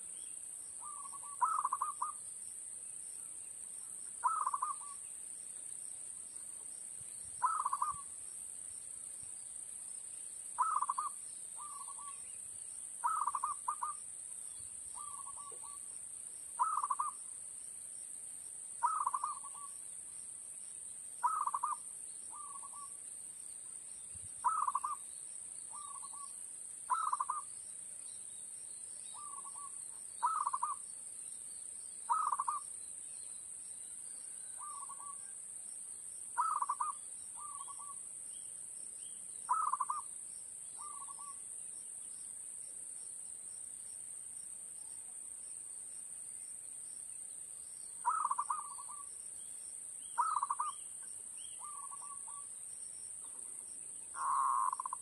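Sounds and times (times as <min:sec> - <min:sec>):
high-pitched hiss: 0:00.0 - 0:55.0
dove cooing: 0:00.8 - 0:02.2, 0:04.2 - 0:05.0, 0:07.4 - 0:08.0, 0:10.6 - 0:12.1, 0:13.0 - 0:14.0, 0:16.6 - 0:17.2, 0:18.8 - 0:19.7, 0:21.2 - 0:22.9, 0:24.4 - 0:25.0, 0:26.9 - 0:27.4, 0:32.1 - 0:32.6, 0:36.4 - 0:37.9, 0:39.5 - 0:40.0, 0:48.0 - 0:49.0, 0:50.2 - 0:50.8, 0:54.2 - 0:55.0.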